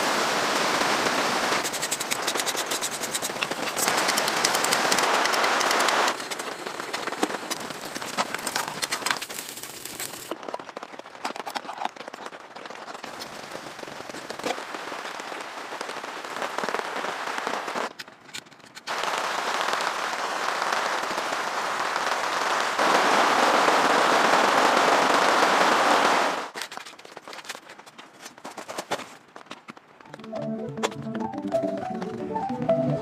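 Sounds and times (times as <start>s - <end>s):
rain on a tent: 0.0s - 11.2s, 11.8s - 18.0s, 18.9s - 26.6s.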